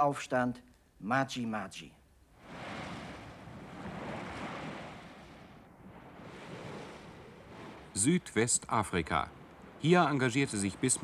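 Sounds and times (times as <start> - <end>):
waves crashing on rocks: 2.4 - 11.0.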